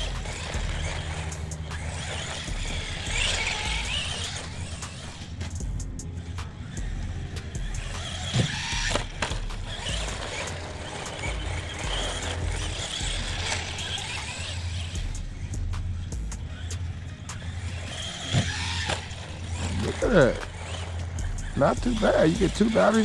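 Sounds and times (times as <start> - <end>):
rc truck electric motor whining: 0.0 - 23.0.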